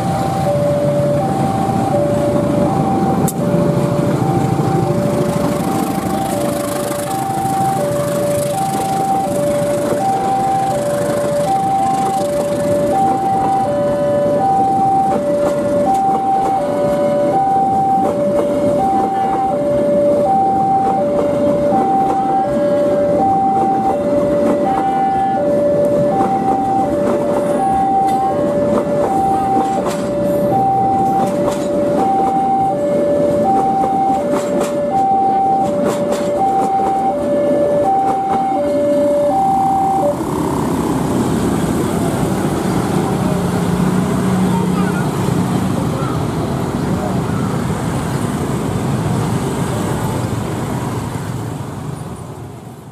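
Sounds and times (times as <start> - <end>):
level crossing two-tone alarm: 0.0 - 40.6
train coaches rumbling on rails: 0.0 - 52.9.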